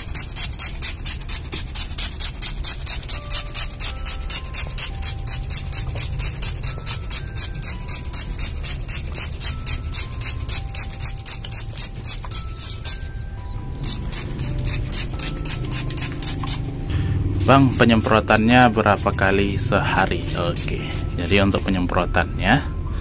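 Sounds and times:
spray bottle hissing squirts: 0:00.0 - 0:13.0.

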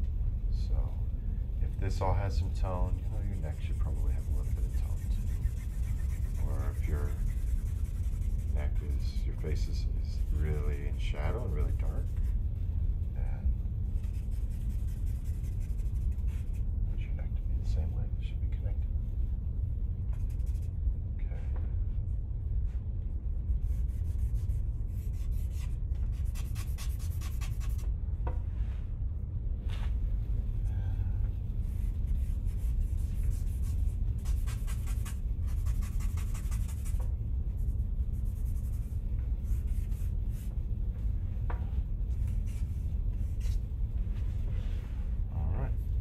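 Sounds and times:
steady low hum: 0:00.0 - 0:46.0
charcoal scratching on paper: 0:02.7 - 0:12.4, 0:14.0 - 0:16.7, 0:20.2 - 0:20.7, 0:23.6 - 0:27.8, 0:31.6 - 0:40.6, 0:42.1 - 0:43.6.

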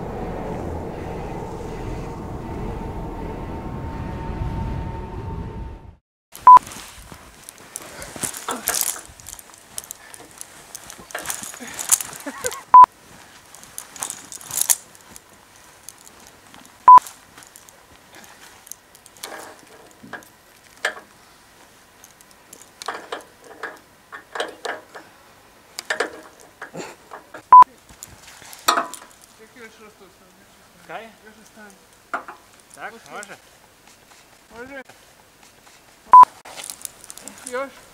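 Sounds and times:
person muttering: 0:08.4 - 0:08.8.

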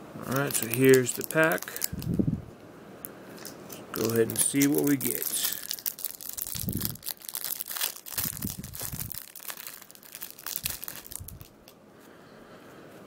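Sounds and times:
plastic wrapper crinkling: 0:00.2 - 0:02.2, 0:03.4 - 0:11.8.

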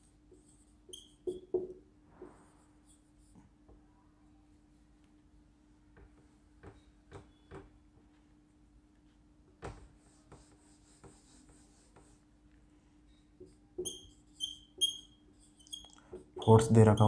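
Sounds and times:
marker strokes on whiteboard: 0:00.0 - 0:03.6, 0:09.6 - 0:12.4, 0:13.4 - 0:17.0
knock on whiteboard: 0:01.3 - 0:01.8
rubbing whiteboard clean: 0:09.7 - 0:12.3.

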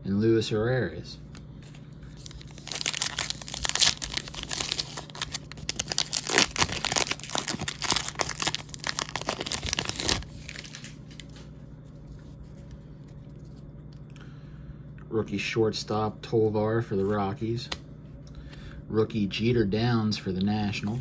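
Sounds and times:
wrapper tearing and crinkling: 0:02.2 - 0:11.4.

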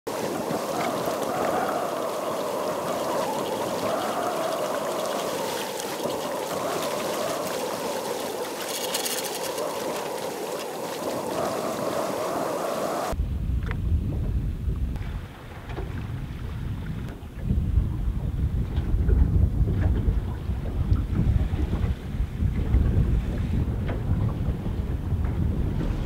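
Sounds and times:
shallow water trickling: 0:00.1 - 0:13.2
water splash: 0:00.1 - 0:13.2.

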